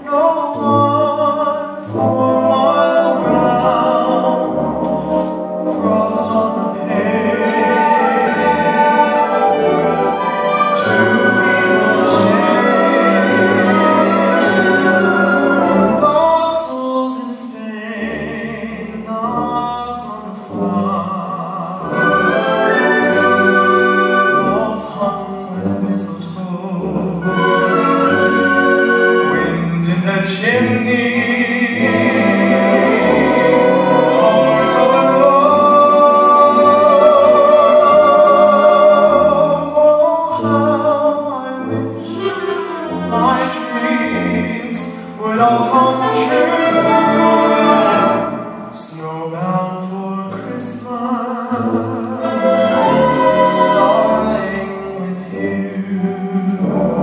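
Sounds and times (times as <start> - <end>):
man singing with vibrato: 0.0 - 57.0
orchestra with strings: 0.0 - 57.0.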